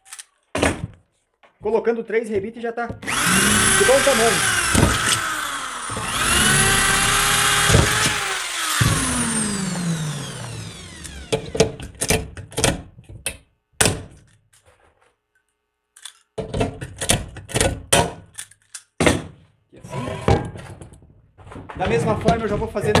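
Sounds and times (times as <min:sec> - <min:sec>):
cordless drill boring metal: 0:03.0 - 0:11.8
drill winding down whine: 0:03.0 - 0:11.8
pop-rivet tool clicking: 0:03.0 - 0:12.2.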